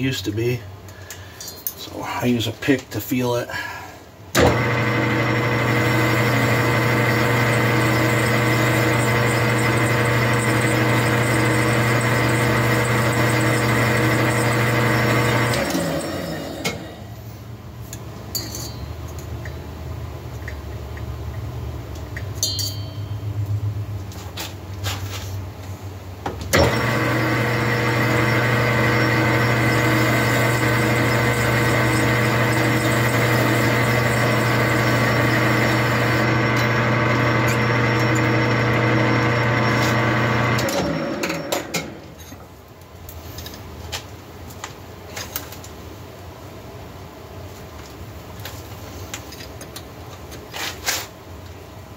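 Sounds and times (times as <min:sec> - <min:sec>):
metal lathe running: 0:04.4 - 0:16.9, 0:26.6 - 0:41.9.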